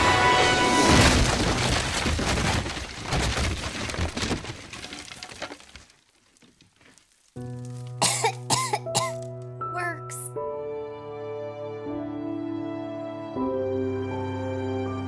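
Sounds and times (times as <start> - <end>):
cartoon crash of crumbling rubble: 0.0 - 8.6.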